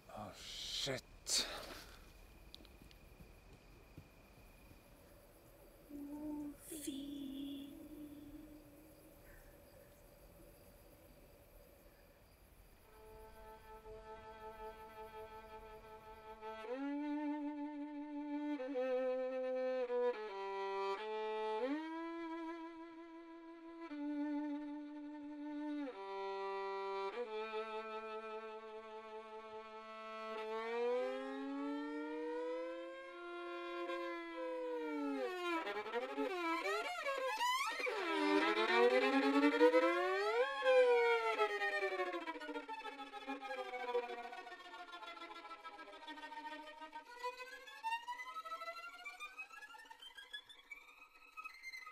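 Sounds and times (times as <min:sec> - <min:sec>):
bowed string instrument with vibrato: 0:12.9 - 0:51.9.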